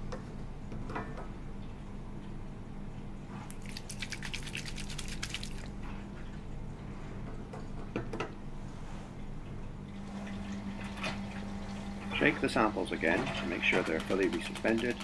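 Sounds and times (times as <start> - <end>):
liquid sloshing in plastic tube: 3.4 - 6.4.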